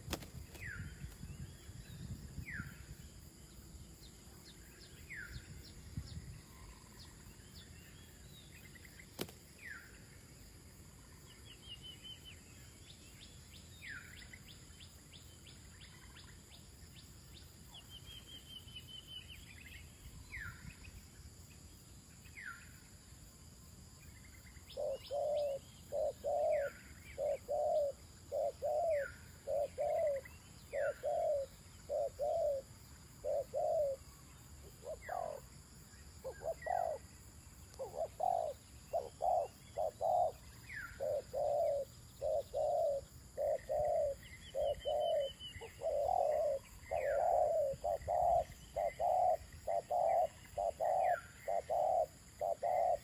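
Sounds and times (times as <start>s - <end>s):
dove cooing: 24.8s - 34.0s, 34.7s - 35.5s, 36.2s - 37.1s, 37.8s - 53.0s.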